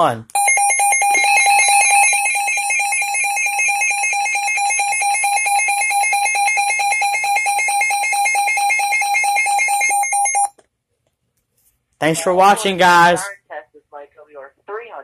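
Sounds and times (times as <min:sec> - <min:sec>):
pulsing electronic alert siren: 0:00.4 - 0:10.5.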